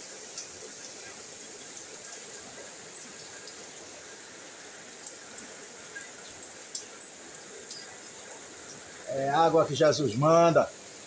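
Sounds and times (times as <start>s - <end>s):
single raindrops ticking: 0.0s - 3.7s, 4.9s - 9.1s
heavy rain: 0.0s - 11.0s.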